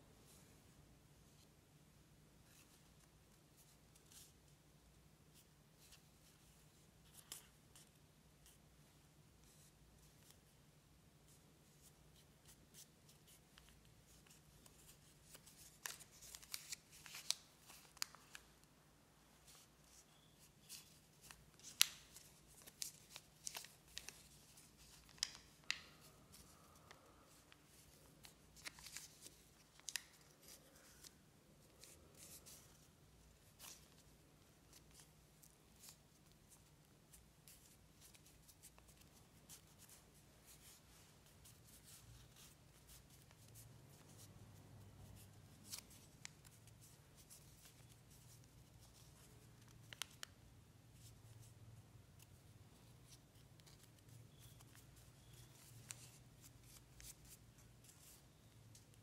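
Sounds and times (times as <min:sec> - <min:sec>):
paper crinkling: 0:12.7 - 0:18.7, 0:19.4 - 0:44.1.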